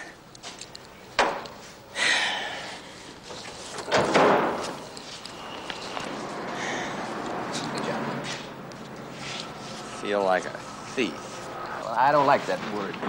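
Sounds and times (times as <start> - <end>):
rattling slam: 3.7 - 4.8.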